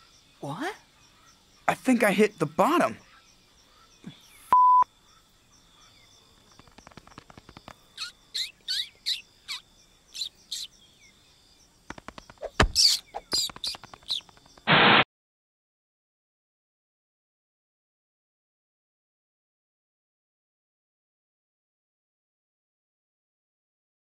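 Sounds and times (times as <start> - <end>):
bird chirps: 0.0 - 14.7
short loud beep: 4.5 - 4.8.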